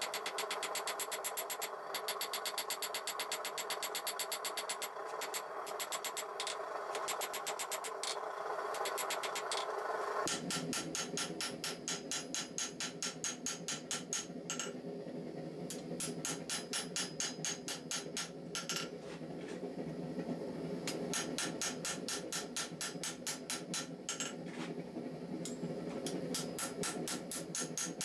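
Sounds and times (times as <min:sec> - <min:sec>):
hammer striking steel on anvil: 0:00.0 - 0:08.2, 0:10.3 - 0:14.8, 0:15.7 - 0:19.0, 0:20.9 - 0:24.4, 0:25.4 - 0:28.0.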